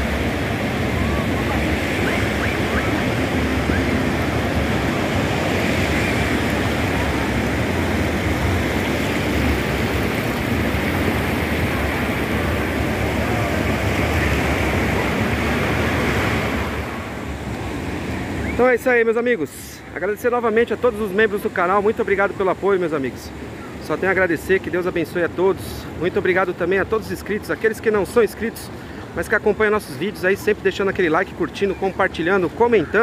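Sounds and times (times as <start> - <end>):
surf washing onto beach: 0.0 - 19.6.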